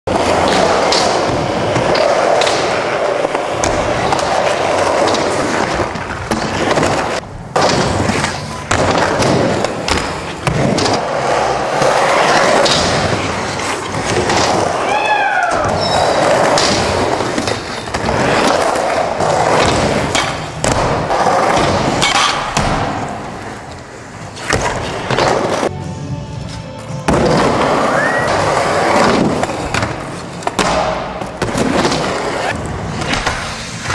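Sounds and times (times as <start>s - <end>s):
skateboard wheels rolling on concrete: 0.1s - 25.8s, 26.4s - 33.9s
music track: 25.7s - 29.6s.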